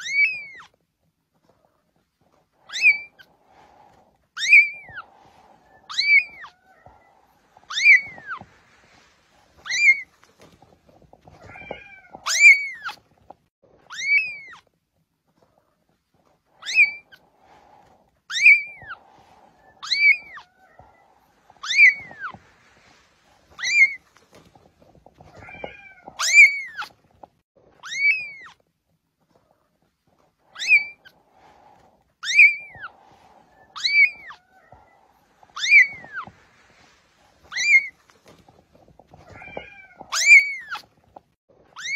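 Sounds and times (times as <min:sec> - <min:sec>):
kitten mewing: 0:04.4 - 0:08.5, 0:11.2 - 0:13.1, 0:18.3 - 0:22.4, 0:25.2 - 0:27.0, 0:30.5 - 0:31.2, 0:32.2 - 0:36.4, 0:37.4 - 0:38.5, 0:39.1 - 0:40.9.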